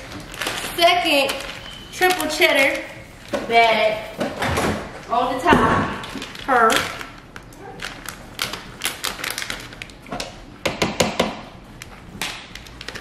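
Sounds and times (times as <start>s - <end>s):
plastic bag crinkling: 0.0s - 4.1s, 5.9s - 10.1s, 11.8s - 13.0s.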